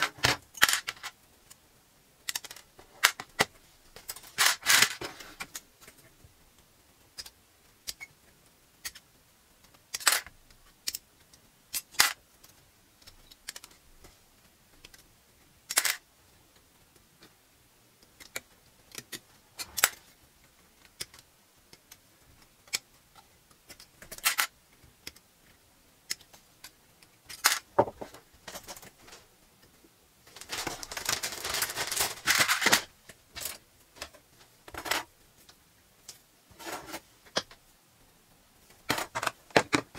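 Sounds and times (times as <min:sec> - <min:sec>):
plastic clattering and rattling: 0:00.0 - 0:01.2, 0:30.3 - 0:35.1, 0:38.8 - 0:39.9.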